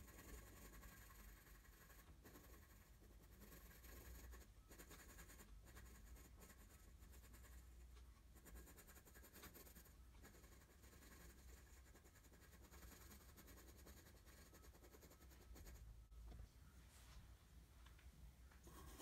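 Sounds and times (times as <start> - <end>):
pencil scratching on paper: 0.0 - 15.9, 18.6 - 19.0
low steady hum: 0.0 - 19.0.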